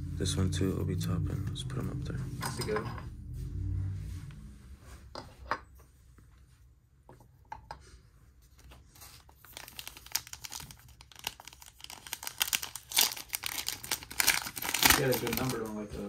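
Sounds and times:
foil pack crinkling and tearing: 9.0 - 15.8.

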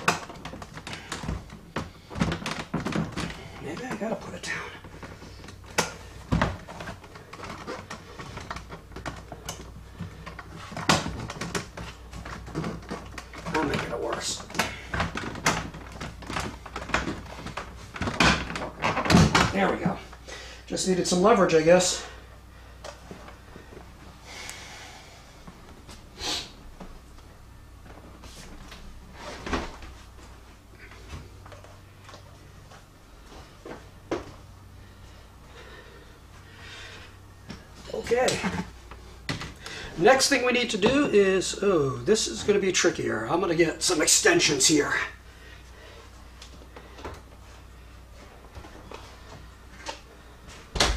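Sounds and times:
plastic console rattling and clicking: 0.0 - 20.0, 37.5 - 41.1.

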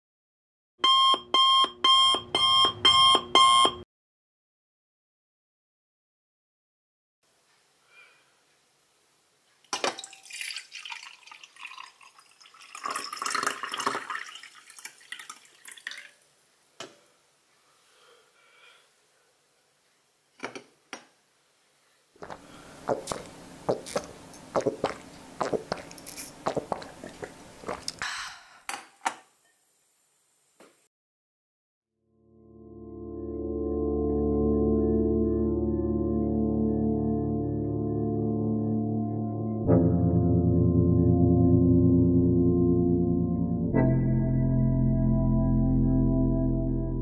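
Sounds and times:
liquid pouring into a glass mug: 9.9 - 16.2.

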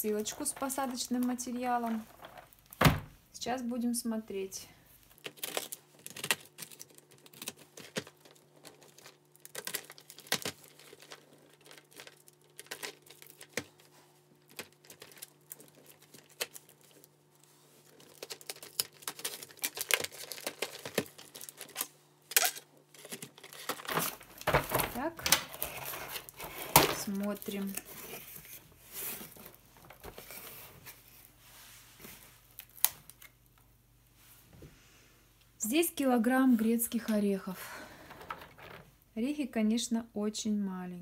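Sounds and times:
faint steady hum: 0.0 - 41.0
cardboard crackling and tearing: 5.2 - 17.1, 17.8 - 21.9.

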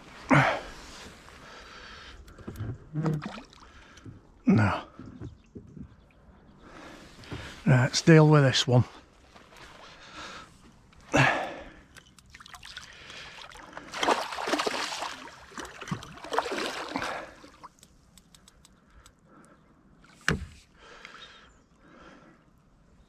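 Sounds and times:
water sloshing: 1.1 - 7.6, 8.9 - 18.6.

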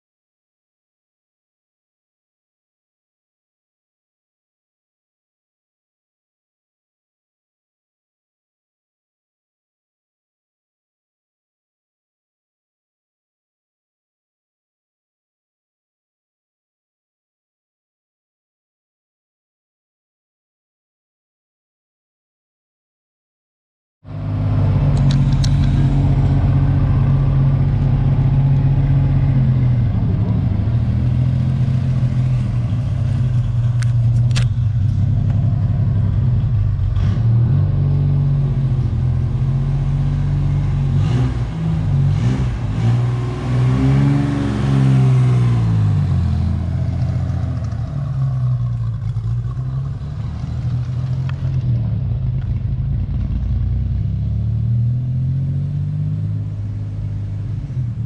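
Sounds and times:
car engine revving: 24.1 - 58.0.

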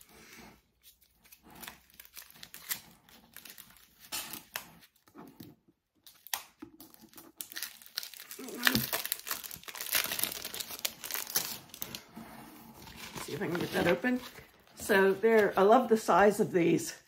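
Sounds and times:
plastic wrapping crinkling: 0.8 - 5.1, 6.0 - 12.1, 12.7 - 15.8.

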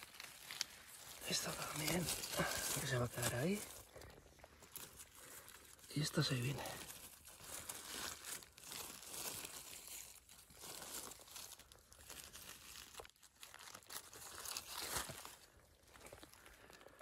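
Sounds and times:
dry leaves and twigs crunching: 0.0 - 17.0.

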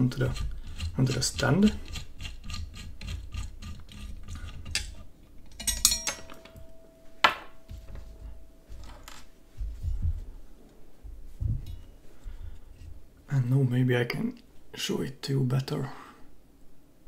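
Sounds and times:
metal clatter with ring: 4.3 - 10.1.

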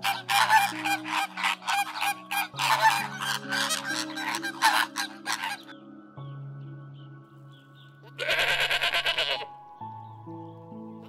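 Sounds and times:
flamingos honking: 0.0 - 5.8
soft background music: 0.0 - 11.0.

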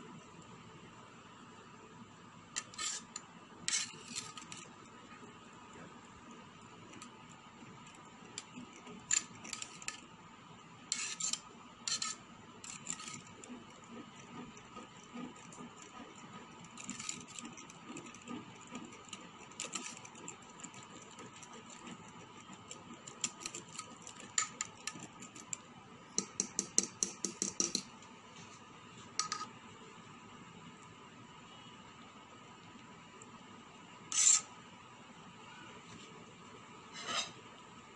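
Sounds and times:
metal spoon scraping a metal pot: 2.6 - 4.8, 7.8 - 10.1, 10.9 - 25.6, 29.2 - 29.5, 34.1 - 34.5, 36.9 - 37.4.

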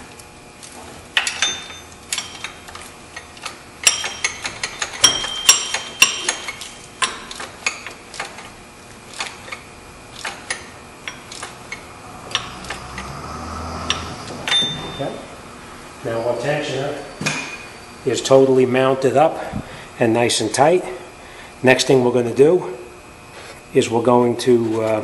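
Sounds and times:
hand ratchet clicking: 1.2 - 8.5, 9.1 - 14.8.

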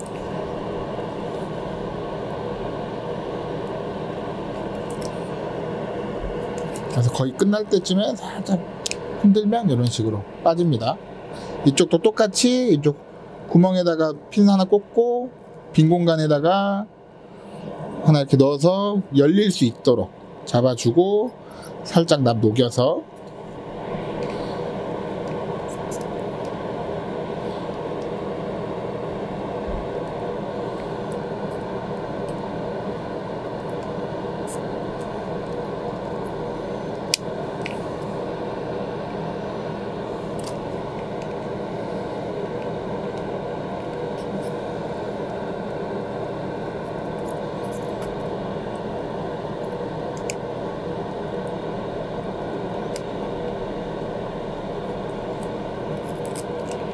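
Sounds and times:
extractor fan whirring: 0.0 - 56.9.

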